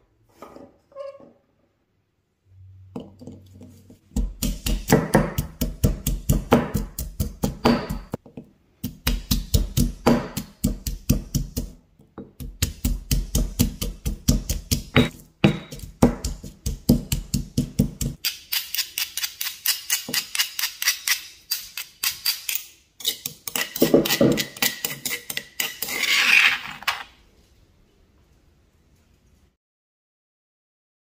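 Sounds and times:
light sharp pestle taps: 4.1s - 18.2s
pestle thudding in stone mortar: 4.1s - 18.3s, 23.4s - 25.0s
metal spoon scraping stone bowl: 18.1s - 27.1s.

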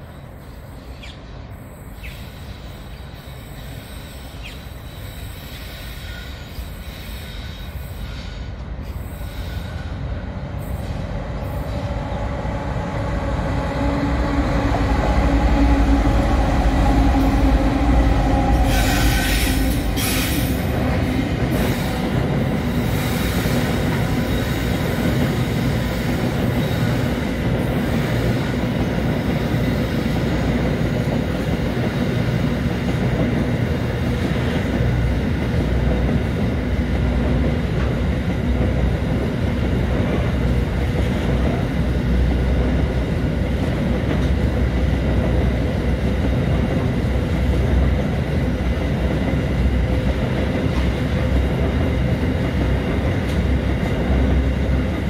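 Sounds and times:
freight wagons rumbling on rails: 8.6s - 55.0s.

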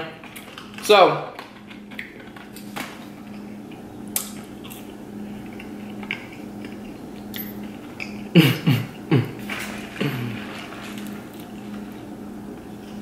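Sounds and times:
chewing food: 1.4s - 8.3s.

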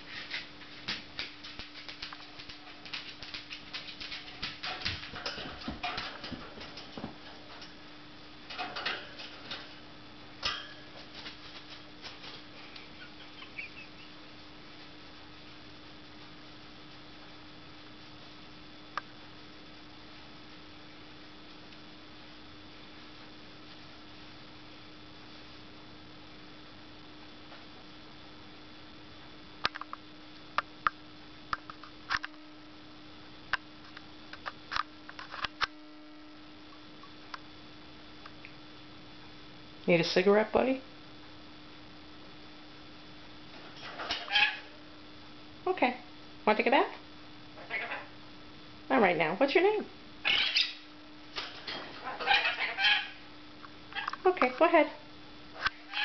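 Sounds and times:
scratchy rustles and clicks: 0.0s - 7.8s, 10.9s - 12.5s
steady low hum: 0.0s - 56.0s.

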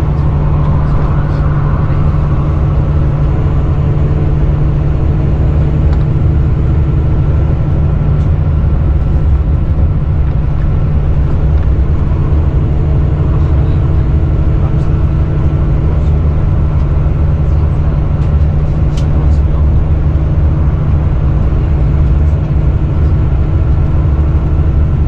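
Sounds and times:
diesel engine drone: 0.0s - 25.0s.

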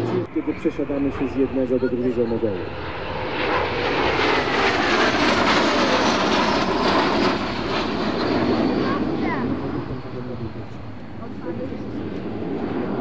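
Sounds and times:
jets flying past: 0.0s - 13.0s.

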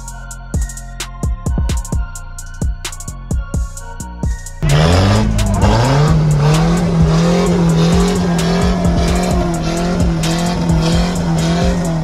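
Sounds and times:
engine at high revs: 4.6s - 12.0s.

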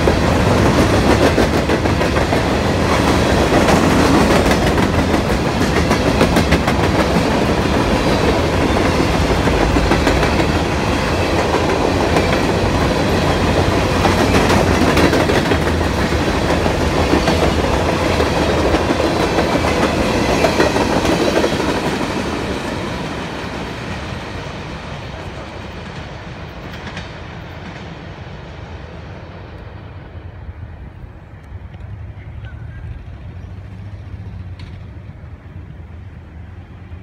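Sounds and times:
train wheels clattering over rail joints: 0.0s - 22.9s.

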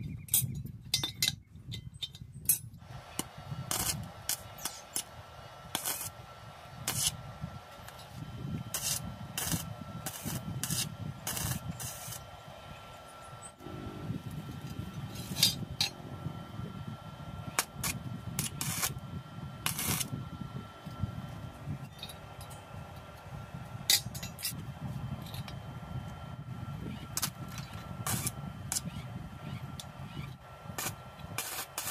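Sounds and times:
welding arc crackling and sizzling: 2.8s - 31.9s.

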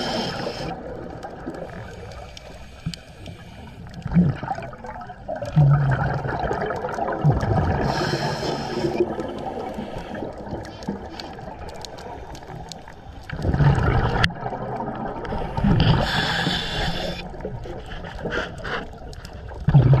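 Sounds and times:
hissing regulator inhale: 0.0s - 0.8s, 2.2s - 3.9s, 7.8s - 11.3s, 15.8s - 17.4s
gurgling exhaled bubbles: 0.0s - 2.4s, 3.6s - 20.0s.

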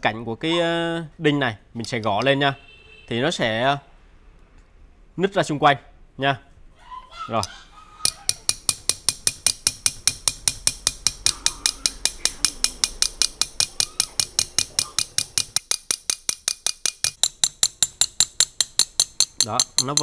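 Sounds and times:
nail tapping metallic clinks: 8.0s - 20.0s.

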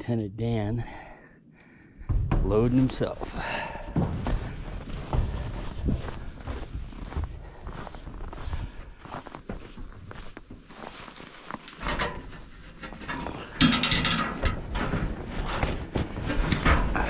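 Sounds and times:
footsteps crunching in snow: 2.6s - 11.8s
metal gate clanging and rattling: 11.6s - 17.0s.

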